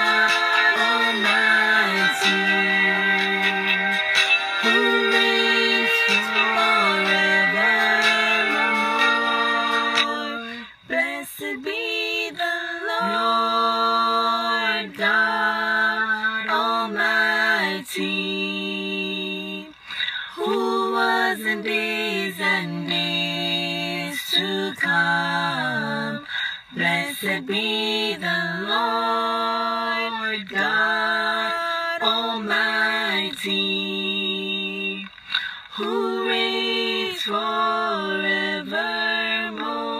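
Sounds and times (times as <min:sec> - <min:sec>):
woman singing a cappella harmony: 0:00.0 - 0:39.9
singer breathing: 0:19.8 - 0:20.4, 0:26.2 - 0:26.8, 0:35.1 - 0:35.8.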